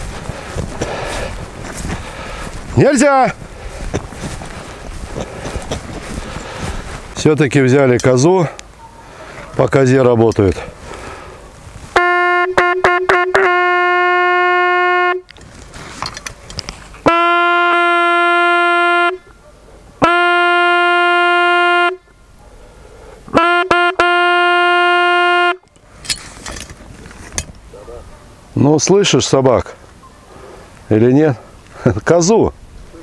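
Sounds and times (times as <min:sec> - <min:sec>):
hunting horn blasts: 0:11.9 - 0:15.3, 0:17.0 - 0:19.3, 0:20.0 - 0:22.1, 0:23.3 - 0:25.7.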